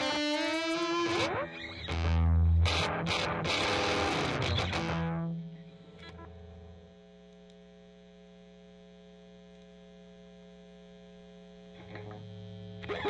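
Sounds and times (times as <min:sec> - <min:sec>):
amplifier mains hum: 0:00.0 - 0:13.0.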